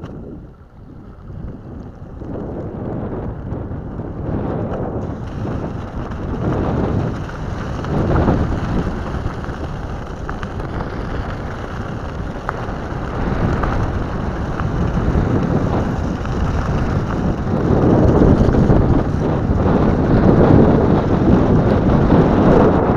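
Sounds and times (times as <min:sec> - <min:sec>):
tyres crunching over gravel: 0:00.0 - 0:22.4
wind buffeting microphone: 0:00.0 - 0:22.9
stones clicking: 0:05.2 - 0:19.2.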